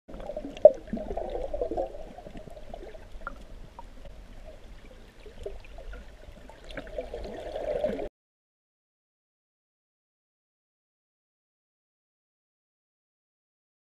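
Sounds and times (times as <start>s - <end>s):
small underwater clicks: 0.1s - 7.4s
underwater gurgling water: 0.1s - 8.1s.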